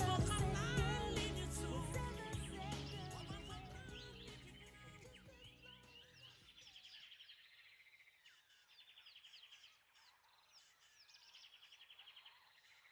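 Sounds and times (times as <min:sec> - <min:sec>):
music: 0:00.0 - 0:06.0.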